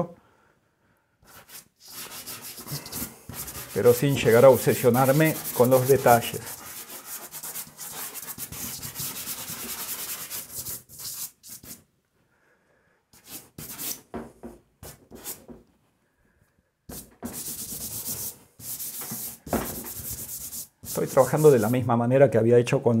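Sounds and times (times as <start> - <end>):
pastel scratching on paper: 1.3 - 11.8, 13.2 - 14.1, 14.8 - 15.6, 16.9 - 21.8.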